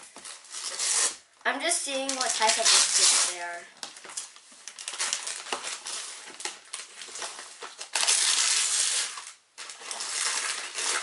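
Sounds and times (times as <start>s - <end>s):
wrapping paper tearing and crinkling: 0.2s - 1.2s, 1.9s - 11.0s
loud paper rip: 0.5s - 1.2s, 2.1s - 3.6s, 7.8s - 11.0s.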